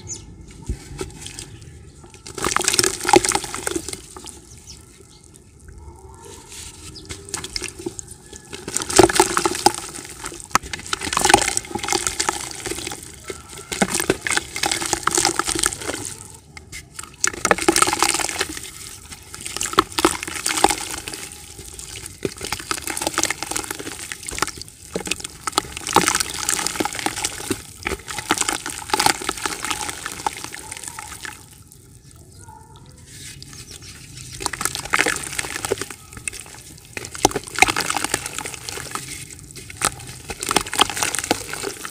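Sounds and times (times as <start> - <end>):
water splashing and trickling: 0.0 - 41.9
dry dirt crackling snaps: 33.1 - 41.9.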